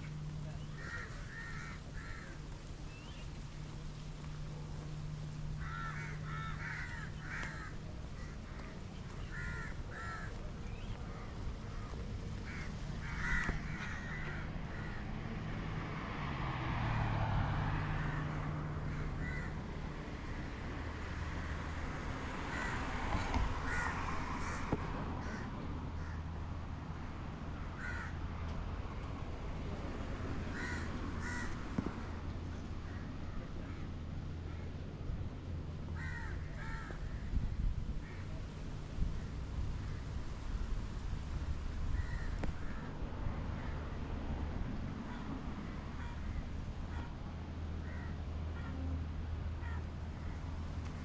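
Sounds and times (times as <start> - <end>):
car passing: 0.0 - 51.0
outdoor traffic: 0.0 - 51.0
crows cawing: 0.7 - 2.5, 5.6 - 10.5, 11.1 - 15.2, 17.9 - 19.6, 22.5 - 26.3, 27.8 - 28.2, 30.5 - 32.2, 32.8 - 34.7, 35.9 - 37.3, 41.9 - 43.0, 45.9 - 47.1, 47.8 - 48.8, 49.6 - 50.4.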